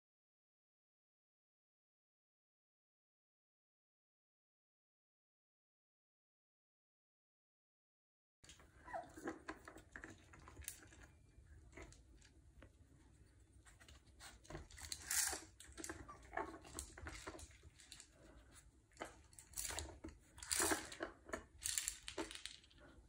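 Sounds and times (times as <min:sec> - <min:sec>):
kibble rattling: 0:13.8 - 0:18.4, 0:19.0 - 0:23.0.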